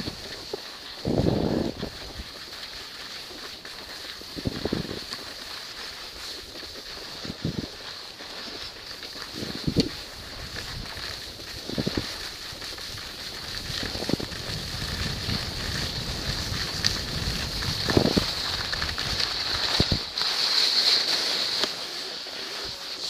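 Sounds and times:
wind rumbling on microphone: 0:00.0 - 0:02.4, 0:04.2 - 0:05.1, 0:07.2 - 0:07.8, 0:09.3 - 0:20.2
skis hissing on snow: 0:00.0 - 0:23.0.

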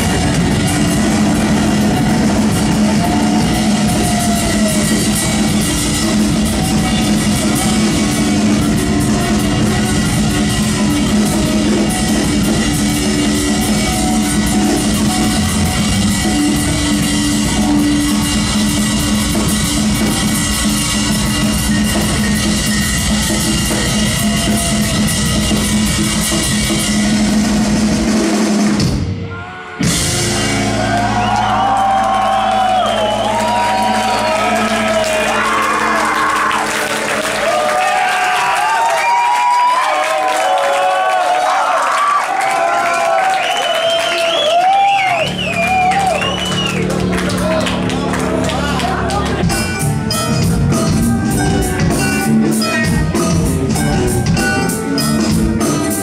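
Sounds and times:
crowd shouting and whooping: 0:00.0 - 0:13.9, 0:14.9 - 0:25.8, 0:29.3 - 0:49.6
drum kit hitting hard: 0:00.0 - 0:29.2, 0:29.8 - 0:37.5
live rock band playing: 0:00.0 - 0:40.1, 0:43.8 - 0:56.0.

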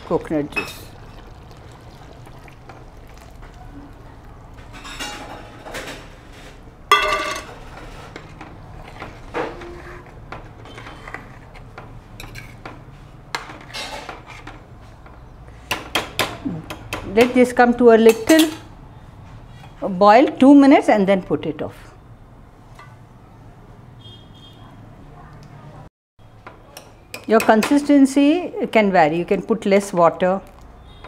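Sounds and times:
metal spoon clinking on a pot: 0:06.9 - 0:07.5.

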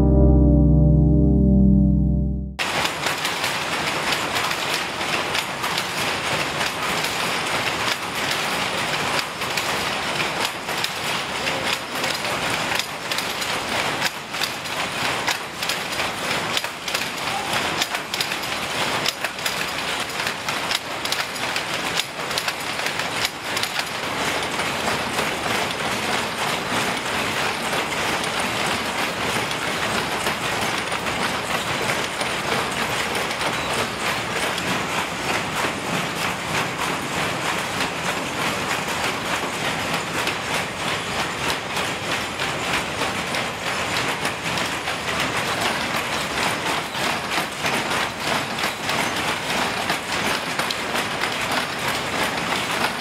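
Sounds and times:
power looms clattering: 0:02.6 - 0:53.0.

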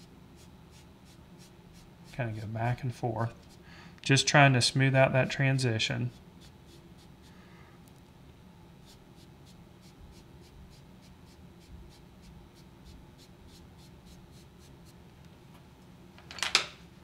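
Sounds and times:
sponge rubbing on paper: 0:00.0 - 0:02.3, 0:06.1 - 0:07.4, 0:08.8 - 0:15.0.

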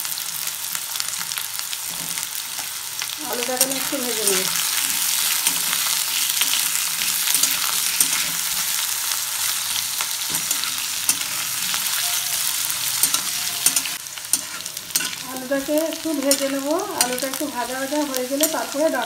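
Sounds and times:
potatoes sizzling in oil: 0:00.0 - 0:19.0
spatula scraping pan: 0:03.3 - 0:08.8, 0:09.4 - 0:19.0.

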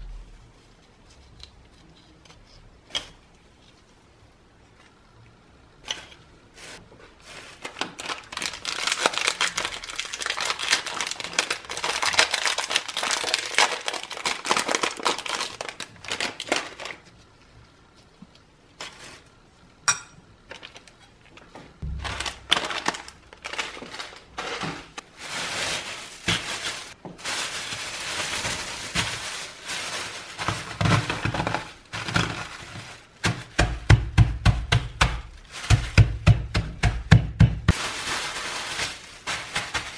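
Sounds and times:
plastic bag crinkling: 0:06.6 - 0:17.3, 0:21.8 - 0:33.6, 0:35.2 - 0:36.2, 0:37.7 - 0:39.9.

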